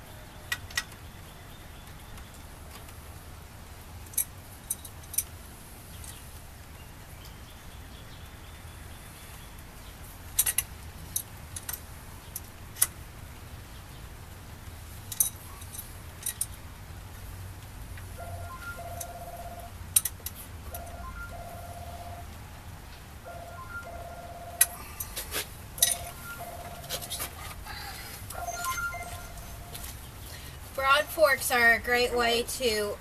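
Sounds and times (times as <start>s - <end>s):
metal tool clicks and clinks: 15.1s - 16.6s, 25.8s - 26.2s.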